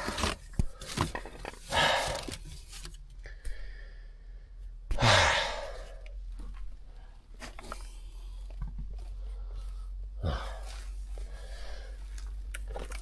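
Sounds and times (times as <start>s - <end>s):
man sighing heavily: 4.9s - 6.0s, 10.2s - 11.9s.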